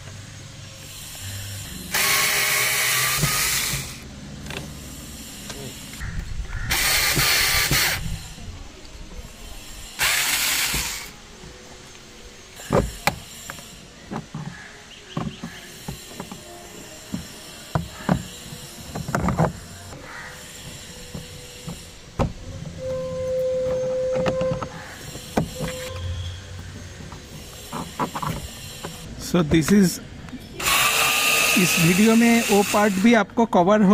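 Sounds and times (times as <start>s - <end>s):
cordless screwdriver whirring: 1.9s - 4.6s, 6.7s - 8.1s, 10.0s - 11.1s, 30.6s - 33.1s.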